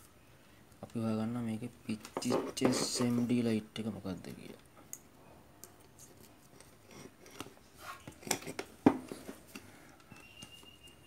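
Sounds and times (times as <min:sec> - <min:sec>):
faint steady high tone: 0:10.0 - 0:11.0.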